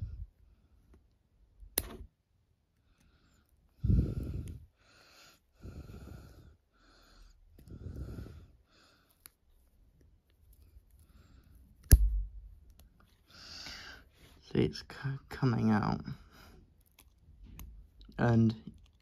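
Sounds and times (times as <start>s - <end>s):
sharp click: 1.8s - 2.0s
person breathing heavily: 2.8s - 9.3s, 13.2s - 14.4s.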